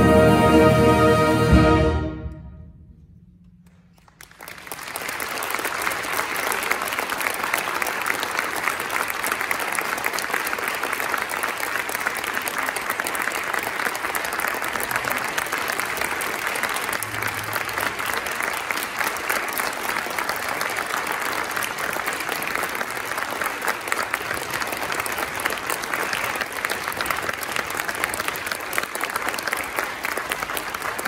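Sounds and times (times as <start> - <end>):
concert band chord: 0.0 - 3.0
audience applause: 3.6 - 31.0.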